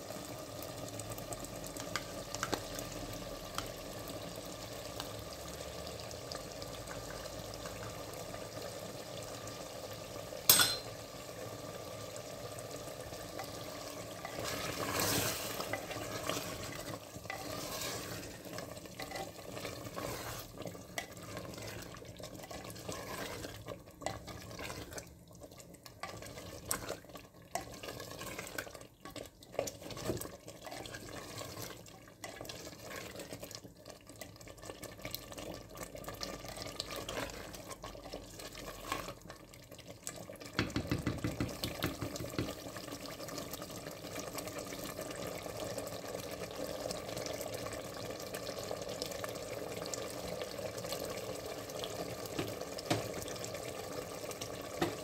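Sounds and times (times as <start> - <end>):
sauce sizzling and bubbling: 0.0 - 55.0
spatula stirring in a pot: 13.1 - 45.3, 50.1 - 55.0
spatula knocking against clay pot: 40.6 - 42.5.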